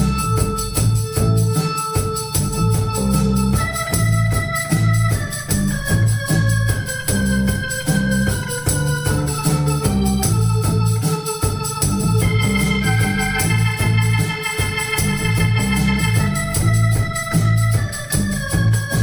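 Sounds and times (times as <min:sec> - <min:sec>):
pulsing bass line: 0:00.0 - 0:01.6, 0:02.3 - 0:19.0
organ-toned keyboard chords: 0:00.0 - 0:19.0
rhythmic ticking: 0:00.0 - 0:19.0
electric guitar: 0:04.6 - 0:19.0.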